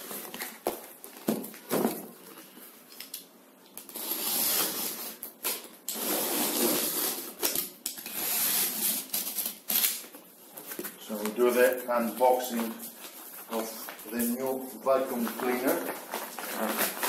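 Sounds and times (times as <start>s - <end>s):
cardboard and plastic film rustling: 8.8s - 17.0s.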